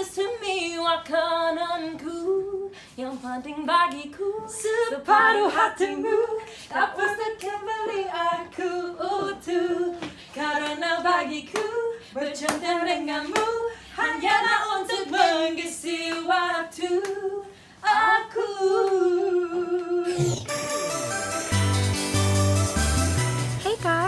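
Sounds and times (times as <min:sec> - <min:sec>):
women singing unaccompanied: 0:00.0 - 0:20.1
hand claps: 0:12.4 - 0:12.7.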